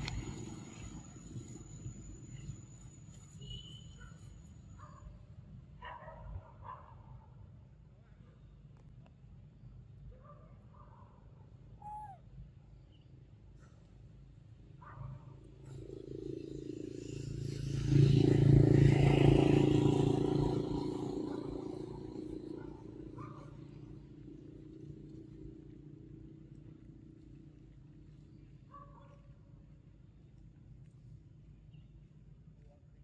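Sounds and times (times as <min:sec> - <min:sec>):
vehicle engine rumble passing: 0:00.0 - 0:03.4, 0:15.4 - 0:28.3.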